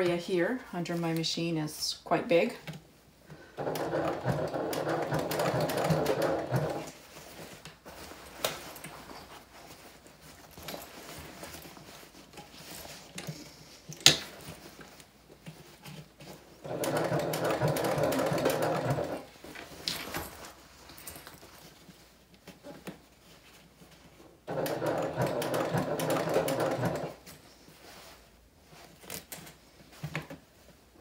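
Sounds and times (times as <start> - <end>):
sewing machine stitching: 3.6 - 7.0, 16.6 - 19.3, 24.5 - 27.2.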